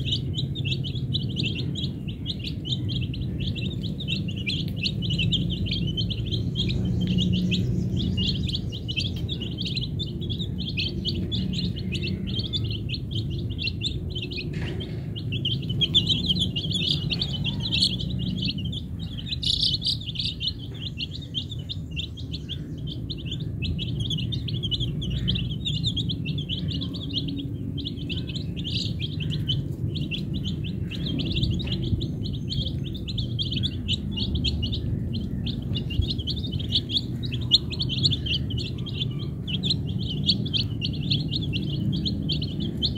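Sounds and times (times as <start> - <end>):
chicks peeping: 0.0 - 42.9.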